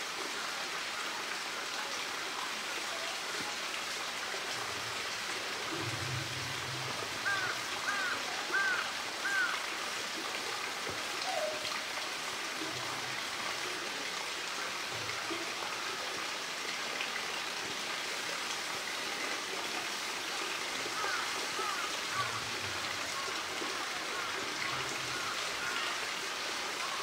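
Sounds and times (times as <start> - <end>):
running water: 0.0 - 27.0.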